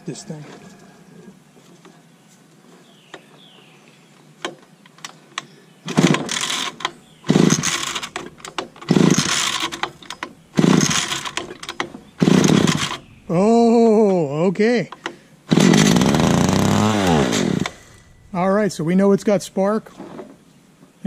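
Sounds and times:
chainsaw starter cord pulls: 0:05.9 - 0:13.1, 0:14.9 - 0:18.1.

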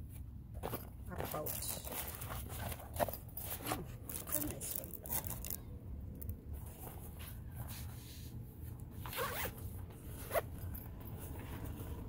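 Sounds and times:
zipper rasping open: 0:09.0 - 0:09.6, 0:10.2 - 0:10.7.

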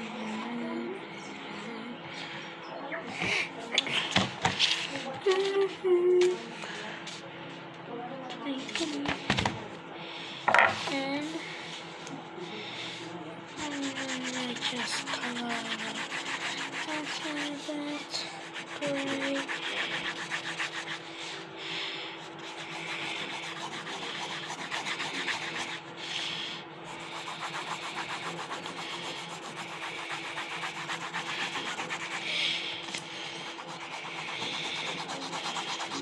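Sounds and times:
pencil scratching on paper: 0:13.6 - 0:21.4, 0:22.2 - 0:36.0.

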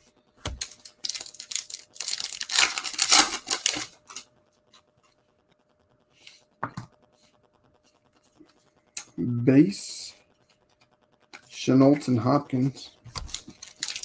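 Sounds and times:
cards rustling: 0:00.4 - 0:04.2, 0:12.0 - 0:14.0
foil pack tearing: 0:00.5 - 0:04.2, 0:13.2 - 0:14.0.

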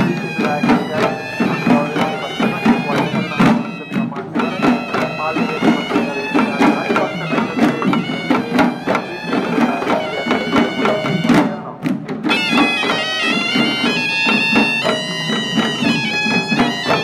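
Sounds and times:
drums beating steady rhythm: 0:00.0 - 0:17.0
shawm playing a melody: 0:00.0 - 0:17.0.

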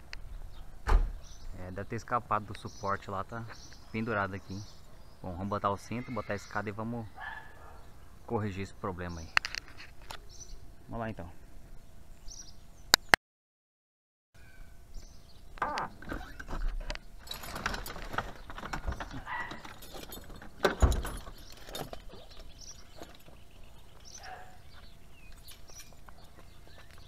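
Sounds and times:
heavy thump: 0:00.8 - 0:01.2
metal buckles clinking: 0:17.2 - 0:26.4.

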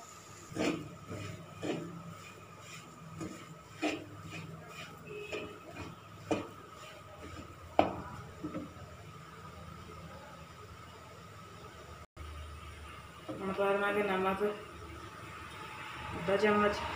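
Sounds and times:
wooden spatula scraping metal pan: 0:00.2 - 0:08.8.

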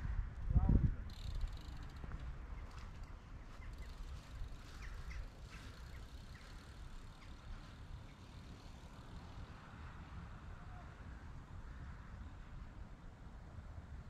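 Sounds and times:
small birds chirping: 0:02.5 - 0:08.3.

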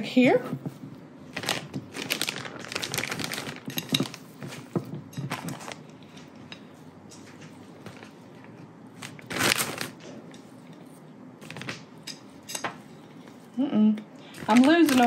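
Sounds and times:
plastic bag rustling: 0:00.7 - 0:06.2, 0:07.3 - 0:10.2, 0:14.3 - 0:15.0.

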